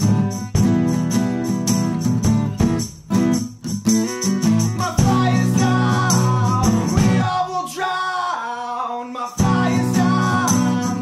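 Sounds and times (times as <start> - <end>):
live band with guitars and percussion: 0.0 - 7.5, 9.4 - 11.0
man singing: 4.7 - 11.0.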